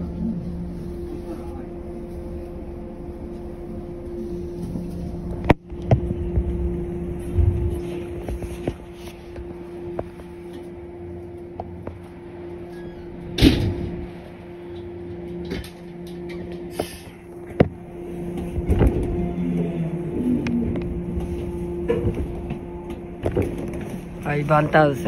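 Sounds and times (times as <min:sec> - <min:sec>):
electric train humming: 0:00.0 - 0:25.0.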